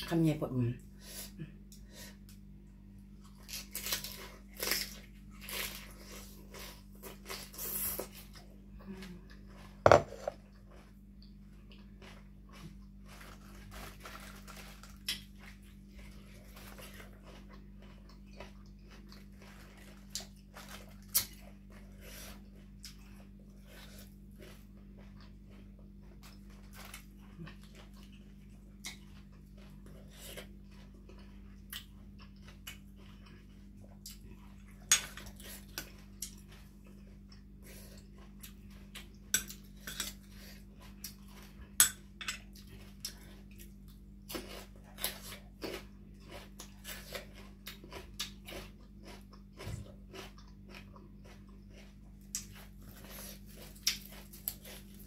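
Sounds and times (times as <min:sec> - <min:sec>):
low steady hum: 0:00.0 - 0:55.0
handling crisp cabbage leaves: 0:13.1 - 0:15.3.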